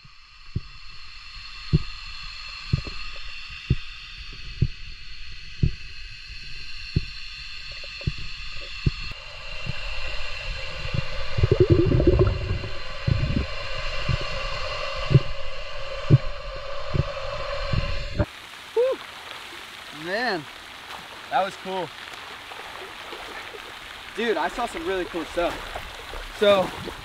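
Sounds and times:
faint steady whine: 0:00.0 - 0:18.3
dull underwater knocks: 0:02.7 - 0:03.1, 0:07.8 - 0:09.8, 0:10.9 - 0:13.5
bubbling gurgles: 0:06.9 - 0:14.4, 0:22.4 - 0:27.0.

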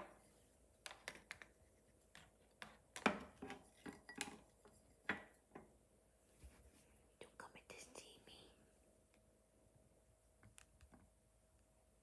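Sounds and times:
objects clicking on tabletop: 0:00.9 - 0:04.4.

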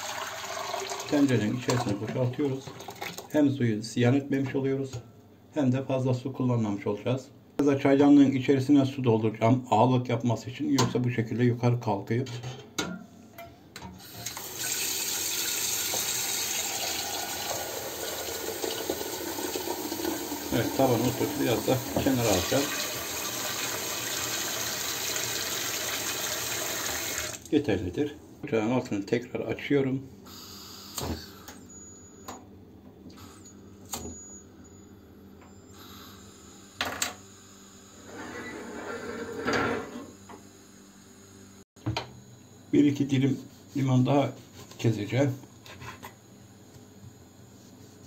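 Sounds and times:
tap water filling kettle: 0:00.0 - 0:03.3, 0:14.1 - 0:27.5
pot scraping on burner grate: 0:38.0 - 0:40.1.

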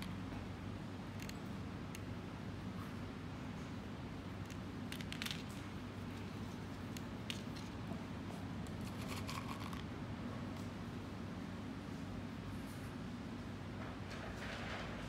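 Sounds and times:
steady low hum: 0:00.0 - 0:14.8
dried beans clicking and rustling: 0:04.3 - 0:09.9.

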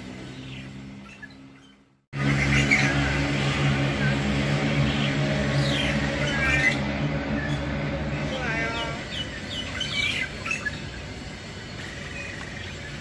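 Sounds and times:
low engine-like hum: 0:00.0 - 0:13.0
bird calling with high whistles: 0:00.2 - 0:03.3, 0:04.8 - 0:07.8, 0:08.6 - 0:11.0.

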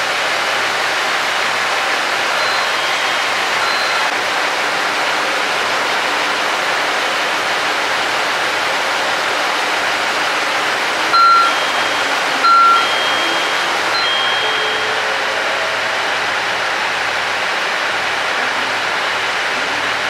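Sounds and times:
diesel engines idling: 0:00.0 - 0:20.0
short high beeps: 0:02.4 - 0:04.1, 0:11.1 - 0:15.3.

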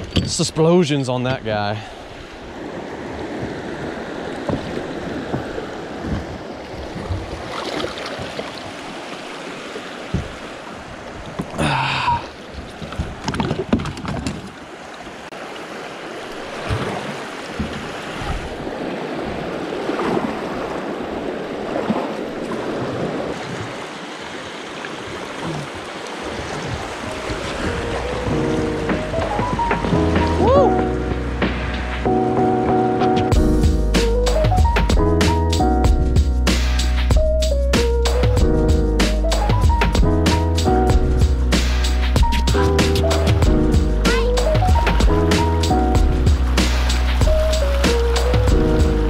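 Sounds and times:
water rushing over rocks: 0:00.0 - 0:31.5, 0:42.2 - 0:49.0
paddle splashing: 0:00.0 - 0:32.1, 0:39.7 - 0:49.0
knocks against kayak hull: 0:04.4 - 0:06.4, 0:10.1 - 0:10.4, 0:17.5 - 0:18.5.

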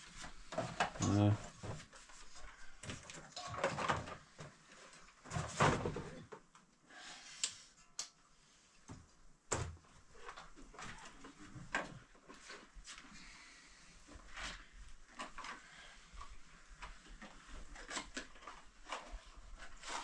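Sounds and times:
objects knocking and clattering: 0:02.8 - 0:04.6, 0:05.2 - 0:06.5.

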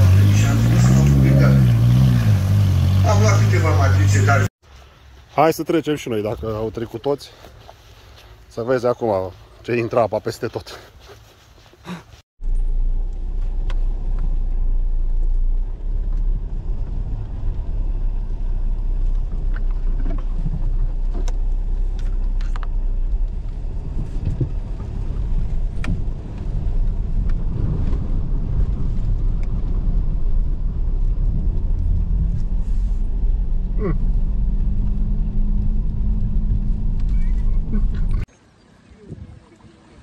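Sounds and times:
engine rumbling under load: 0:00.0 - 0:05.2, 0:11.8 - 0:38.3.

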